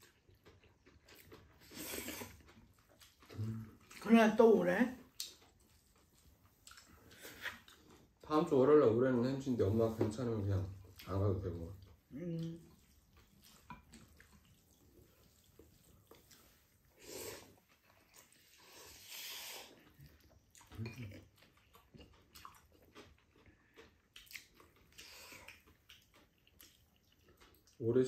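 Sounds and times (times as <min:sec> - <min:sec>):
quiet chewing: 0:00.0 - 0:08.6, 0:09.2 - 0:28.0
slurping noodles: 0:01.6 - 0:02.5, 0:13.4 - 0:20.2.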